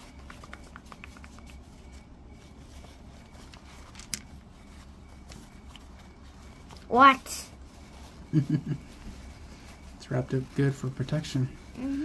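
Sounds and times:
wrapping rustling and clicking: 0:00.0 - 0:06.9
low steady hum: 0:00.0 - 0:12.0.

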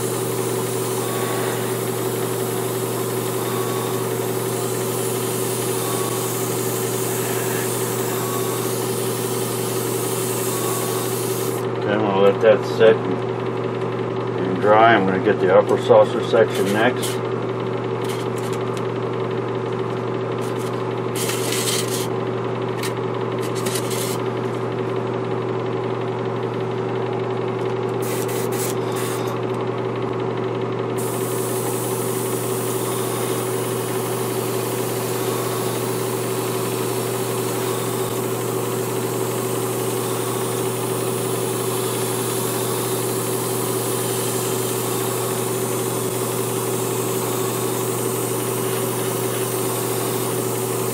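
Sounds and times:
airbrush spraying air hiss: 0:00.0 - 0:11.6, 0:20.4 - 0:22.1, 0:22.8 - 0:24.3, 0:28.0 - 0:29.4, 0:31.0 - 0:50.9
compressor humming: 0:00.0 - 0:50.9.

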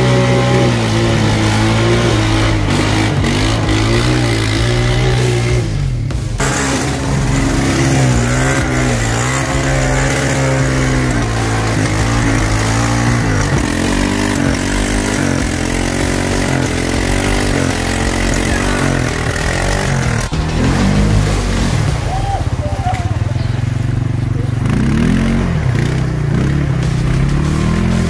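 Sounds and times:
quad bike engine revving: 0:00.0 - 0:28.0
wheels spinning in mud: 0:00.0 - 0:28.0.

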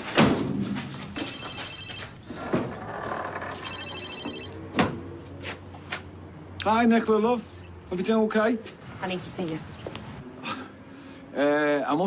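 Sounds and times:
phone ringing electronic trill: 0:01.2 - 0:02.3, 0:03.5 - 0:04.6.

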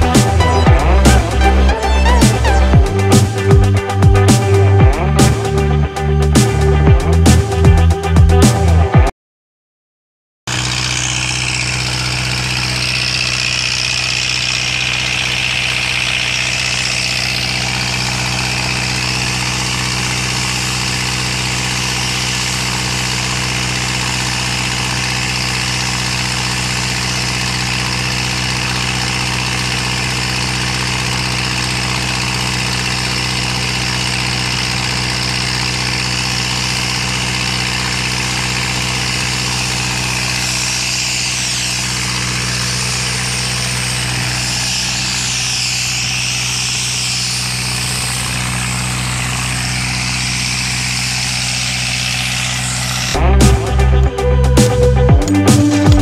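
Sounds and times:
air compressor engine running: 0:00.0 - 0:08.6, 0:10.5 - 0:56.0
compressed air hissing from hose: 0:40.4 - 0:48.2.

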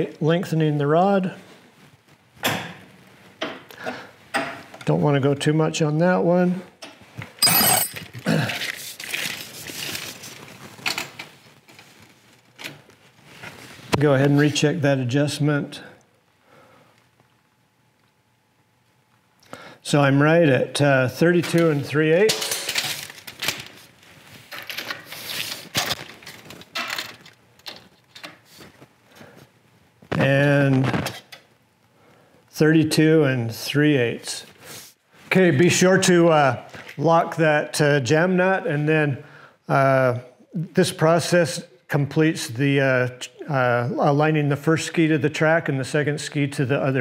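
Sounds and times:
loud metallic clink: 0:07.4 - 0:08.0.

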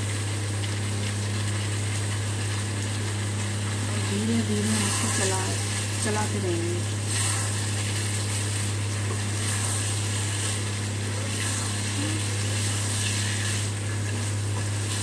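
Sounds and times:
steady low hum: 0:00.0 - 0:15.0
spatula scraping vegetables in pan: 0:07.1 - 0:10.6.

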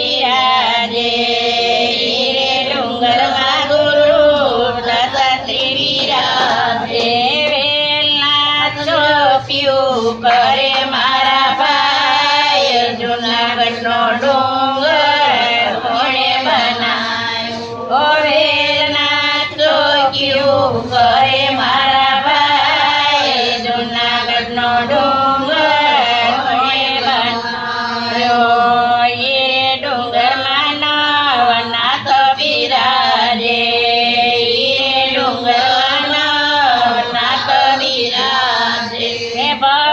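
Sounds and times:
women singing together: 0:00.0 - 0:39.9.

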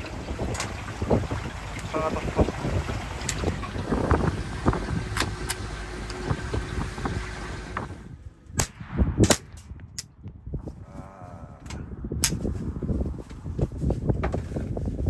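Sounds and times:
water noise around boat: 0:00.0 - 0:08.3
wind: 0:00.0 - 0:15.0.

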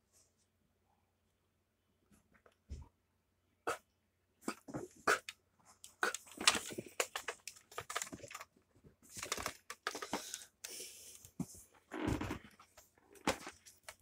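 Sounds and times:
handling rustles and clicks: 0:05.8 - 0:14.0.

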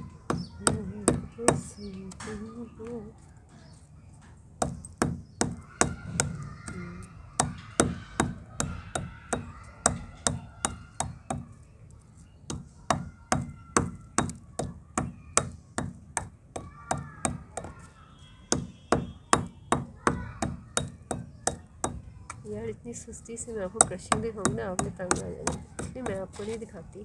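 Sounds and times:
metal pestle pounding clay on stone: 0:12.5 - 0:17.8, 0:23.8 - 0:26.4.

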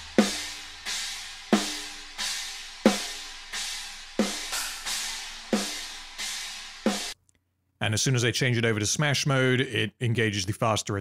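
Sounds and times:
cymbal wash: 0:00.0 - 0:07.2
snare drum hits: 0:04.2 - 0:05.8.

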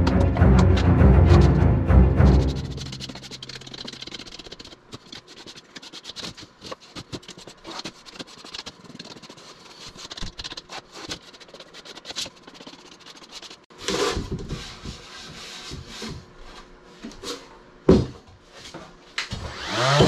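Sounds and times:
handling clicks and scrapes: 0:02.3 - 0:14.2.

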